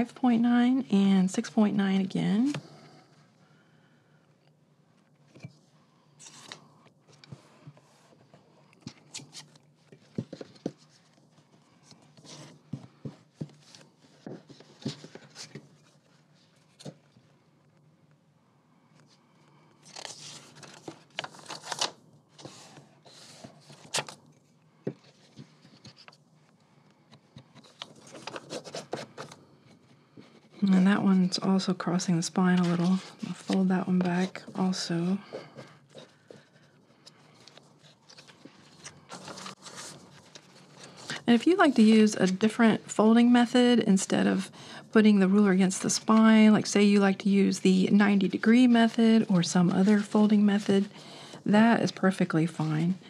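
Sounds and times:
paper rustling and scraping: 0:19.8 - 0:24.2, 0:27.6 - 0:29.4, 0:32.4 - 0:42.4, 0:48.6 - 0:51.0.

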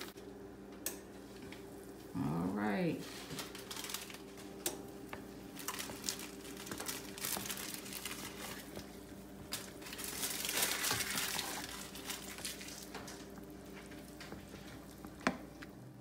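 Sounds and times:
small crackles and pops: 0:03.3 - 0:15.8
noodles simmering in broth: 0:03.4 - 0:16.0.

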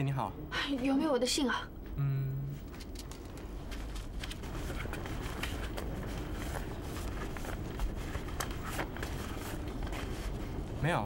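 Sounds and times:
paper mail rustling: 0:03.1 - 0:10.7.

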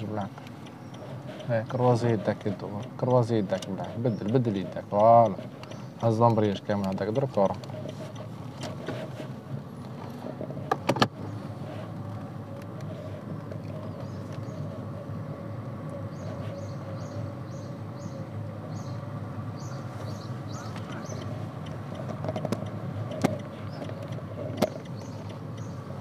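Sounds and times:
sharp clicks: 0:00.0 - 0:09.1, 0:20.1 - 0:25.9
car engine running: 0:00.0 - 0:26.0.

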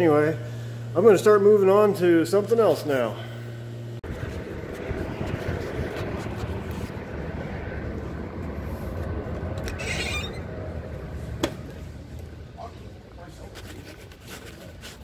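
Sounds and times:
vehicle engine rumble: 0:03.5 - 0:15.0.

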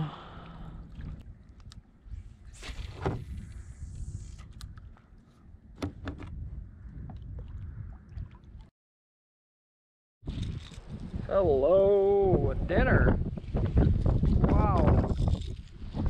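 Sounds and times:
water lapping against kayak hull: 0:00.2 - 0:06.3.

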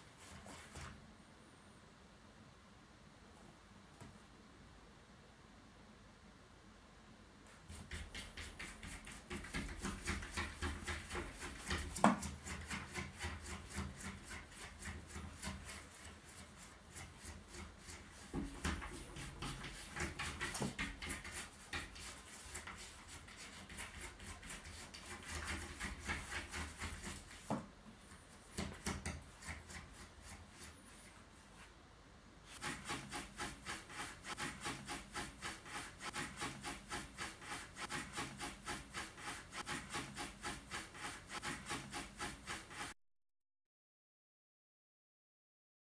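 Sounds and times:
cat scratching at door: 0:07.7 - 0:27.5, 0:32.6 - 0:42.9.

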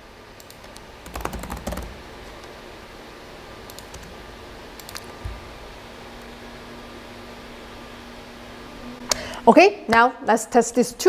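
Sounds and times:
laptop keyboard typing: 0:00.4 - 0:02.0, 0:03.7 - 0:04.2, 0:04.8 - 0:05.1.

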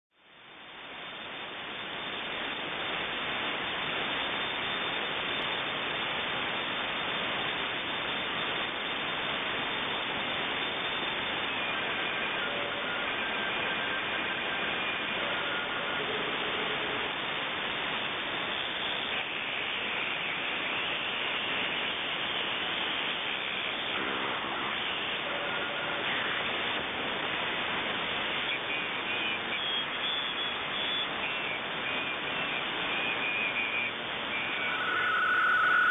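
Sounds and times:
radio static hiss: 0:00.1 - 0:35.9
faint brief tones: 0:33.2 - 0:35.9.

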